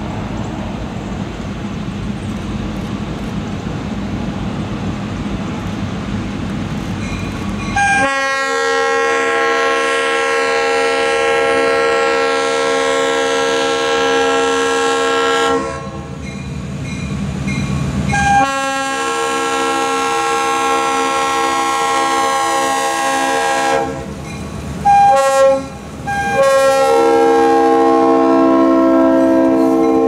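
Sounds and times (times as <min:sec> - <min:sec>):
train rumble: 0:00.0 - 0:30.0
locomotive air horn: 0:07.8 - 0:16.2, 0:18.1 - 0:24.2, 0:24.8 - 0:30.0.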